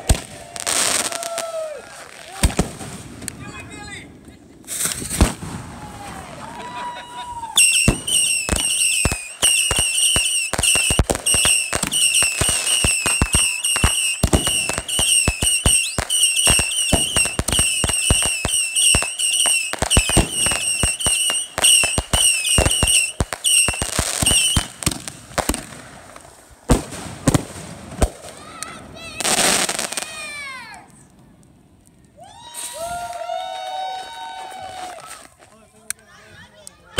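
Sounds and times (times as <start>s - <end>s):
fireworks bangs and crackles: 0.0s - 33.4s
warbling firework whistles: 7.6s - 24.8s.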